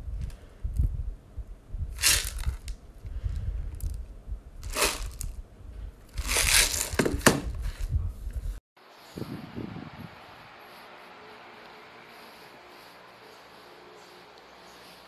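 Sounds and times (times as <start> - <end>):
plastic wrapping crinkling: 4.6 - 5.3, 6.2 - 7.4.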